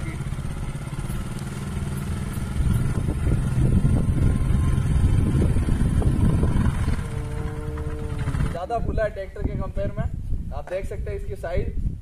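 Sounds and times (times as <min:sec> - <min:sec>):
motorcycle engine revving: 0:00.0 - 0:08.7.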